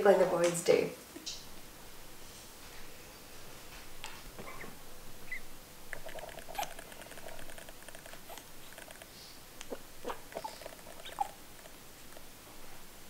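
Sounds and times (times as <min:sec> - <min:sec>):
puppies squeaking: 0:04.4 - 0:09.0, 0:09.6 - 0:11.8
clicks and rustles on a towel: 0:05.9 - 0:09.8.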